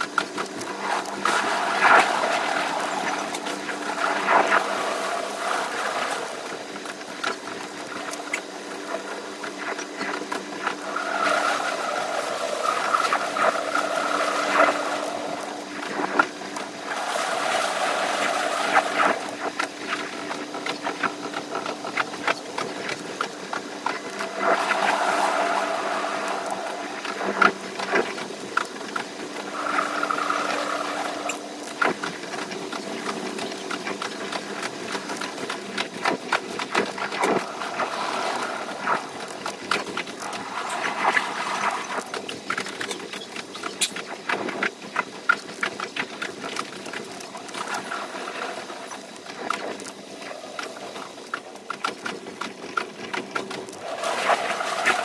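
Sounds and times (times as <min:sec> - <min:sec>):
train mechanical hum and whine: 0:00.0 - 0:55.0
wheels clattering over rails: 0:00.0 - 0:55.0.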